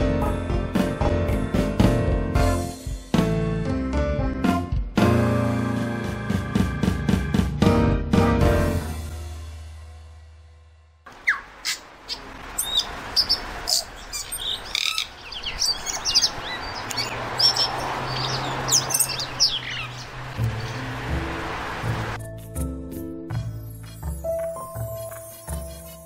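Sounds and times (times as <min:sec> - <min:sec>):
low background music: 0:00.0 - 0:10.8, 0:20.2 - 0:26.0.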